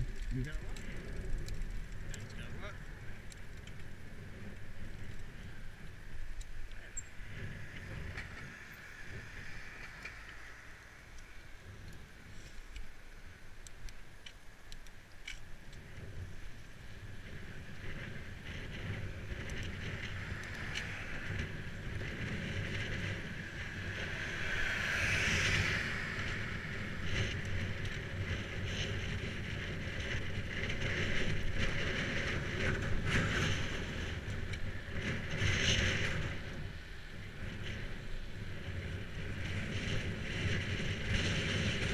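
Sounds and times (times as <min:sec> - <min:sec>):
bicycle tyres on tarmac: 0:00.0 - 0:41.9
wind rumbling on microphone: 0:00.0 - 0:41.9.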